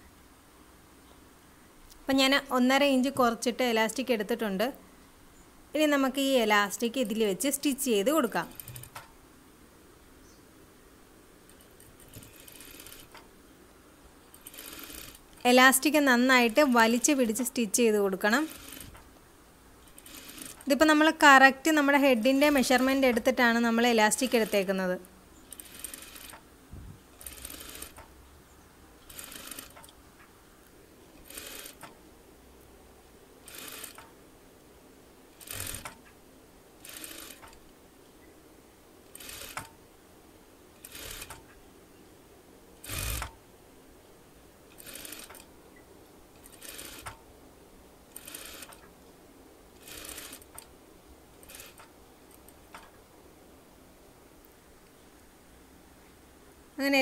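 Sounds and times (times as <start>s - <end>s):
sewing machine stitching: 8.4s - 9.1s, 11.5s - 13.2s, 14.3s - 15.5s, 18.3s - 19.0s, 19.8s - 20.8s, 24.1s - 24.7s, 25.5s - 26.4s, 27.2s - 28.1s, 29.0s - 29.9s, 31.2s - 32.0s, 33.4s - 34.1s, 35.4s - 36.0s, 36.8s - 37.6s, 39.1s - 39.7s, 40.8s - 41.4s, 42.8s - 43.4s, 44.7s - 45.5s, 46.4s - 47.2s, 48.1s - 48.8s, 49.8s - 50.6s, 51.4s - 52.5s.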